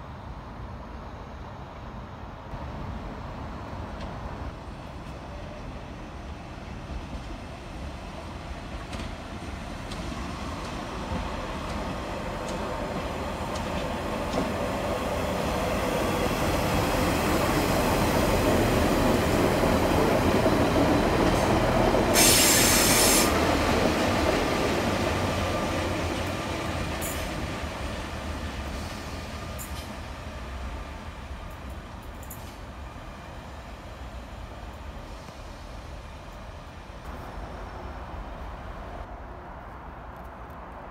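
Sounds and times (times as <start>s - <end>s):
diesel train engine and wheels: 0.0s - 40.9s
brief sharp hiss: 22.1s - 23.4s.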